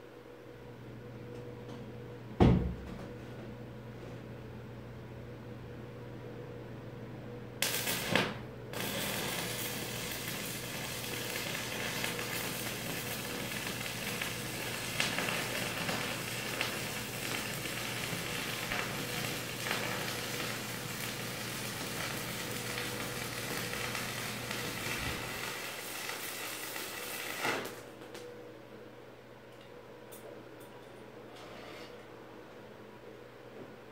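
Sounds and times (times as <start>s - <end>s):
welding arc burning: 7.6s - 28.2s.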